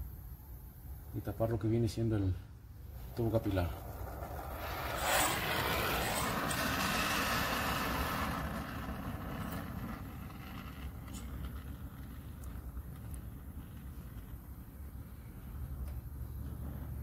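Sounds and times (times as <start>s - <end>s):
steady low rumble: 0.8s - 17.0s
torch flame hissing: 2.7s - 17.0s.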